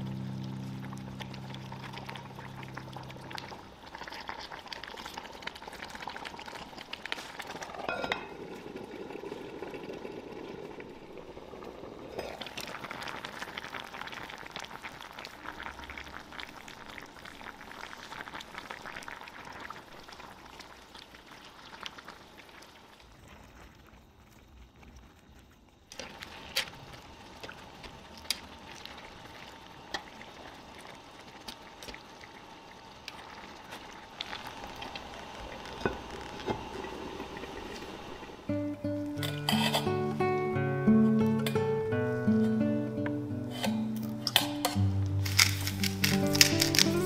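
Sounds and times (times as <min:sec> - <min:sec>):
stew bubbling in a pot: 0:00.0 - 0:40.0
pot lid lifted off: 0:39.2 - 0:39.8.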